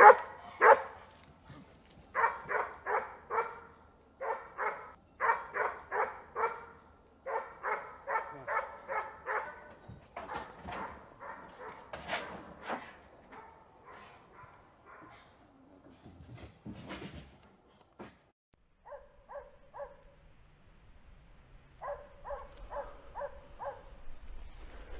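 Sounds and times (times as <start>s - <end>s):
distant dogs barking: 0.0s - 15.6s, 18.8s - 20.2s, 21.8s - 24.0s.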